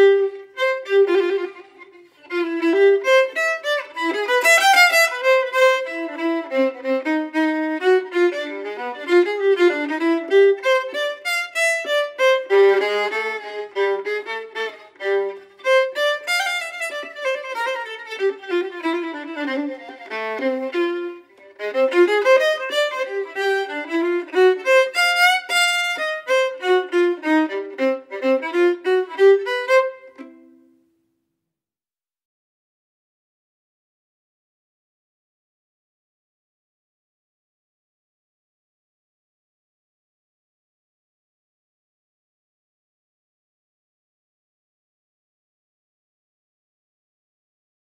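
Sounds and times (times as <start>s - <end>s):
fast violin melody: 0.0s - 30.6s.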